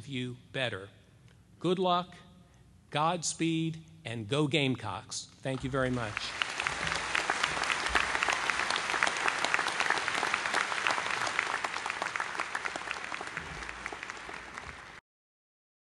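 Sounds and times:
audience applauding: 0:05.6 - 0:15.0.

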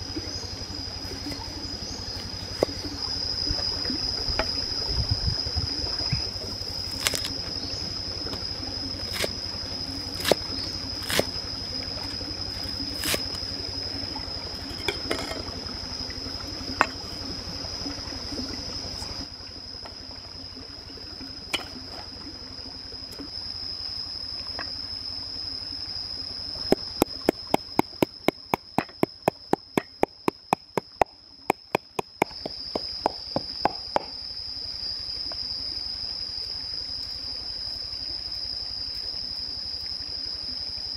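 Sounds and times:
steady high whine: 0:00.0 - 0:19.8
water trickling: 0:00.0 - 0:24.8, 0:25.8 - 0:34.1
rapid sharp knocks: 0:26.7 - 0:34.1.

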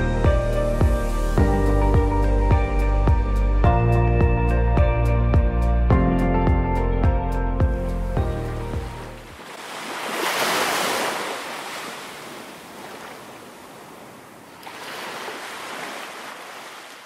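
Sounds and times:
ocean surf breaking on beach: 0:09.3 - 0:17.0.

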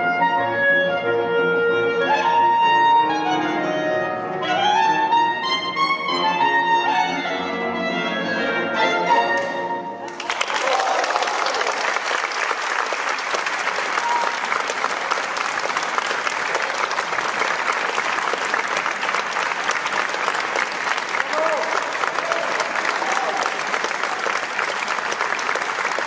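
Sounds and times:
audience applause: 0:10.1 - 0:26.0.

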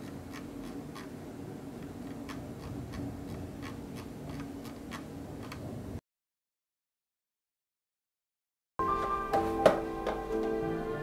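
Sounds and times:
steady low hum: 0:00.0 - 0:06.0.

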